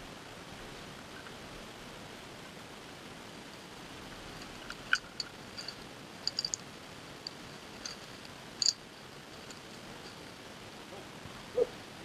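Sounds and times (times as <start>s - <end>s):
faint outdoor hiss: 0.0s - 12.0s
high-pitched tinkling clicks: 4.4s - 6.7s, 7.3s - 10.3s.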